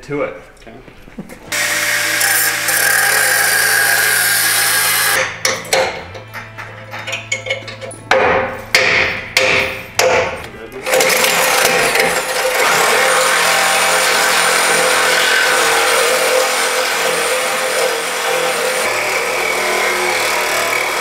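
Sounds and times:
angle grinder cutting steel: 1.5 - 5.2, 10.9 - 21.0.

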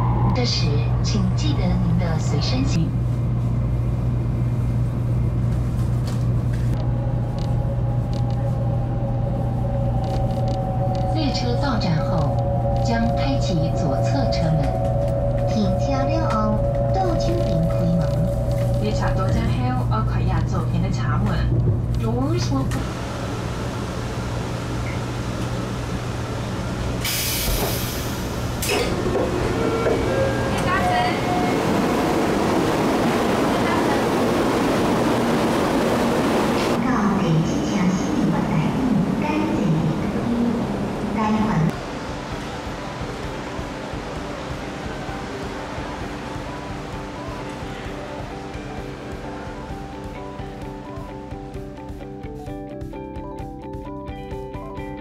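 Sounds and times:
train cabin rumble: 0.0 - 49.5
loud air hiss: 27.0 - 28.3.

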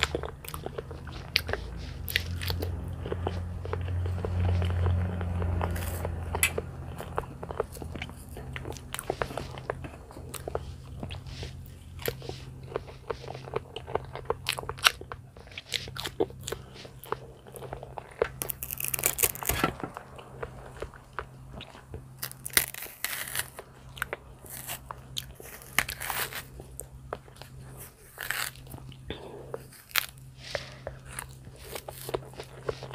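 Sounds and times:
chewing soft banana: 0.0 - 32.9
banana peel tearing: 18.2 - 20.2, 22.0 - 26.5, 28.0 - 29.0.

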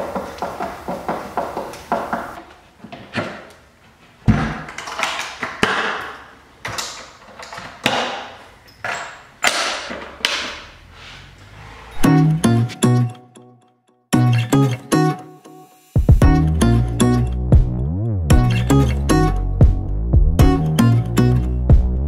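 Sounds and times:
acoustic guitar music: 12.0 - 15.5, 20.4 - 21.6.

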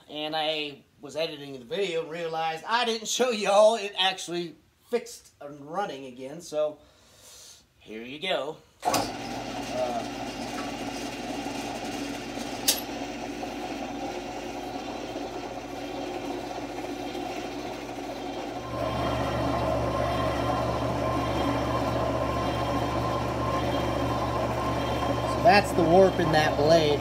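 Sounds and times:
bandsaw motor hum: 8.8 - 27.0
high steady tone: 17.2 - 27.0.

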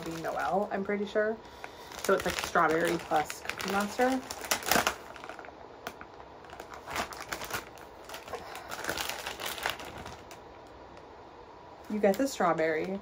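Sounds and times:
plastic bag crinkling: 0.0 - 0.9, 1.5 - 10.8.

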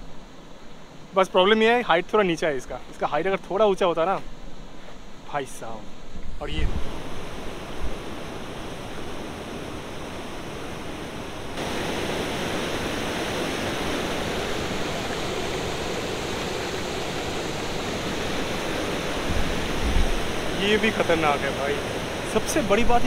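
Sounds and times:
waterfall rushing: 6.6 - 23.0.

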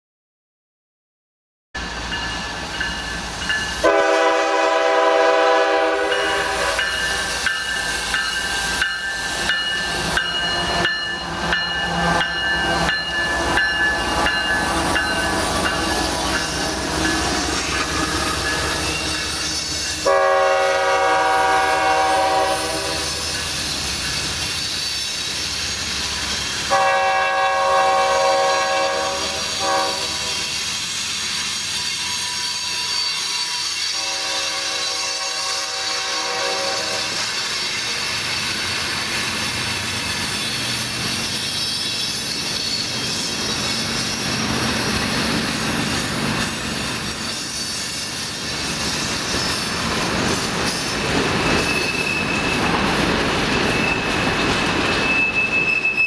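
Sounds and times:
locomotive air horn: 3.8 - 6.8, 20.0 - 23.2, 26.7 - 30.4, 33.9 - 37.2
train wheels clicking over rail joints: 6.1 - 20.1, 37.1 - 56.0.

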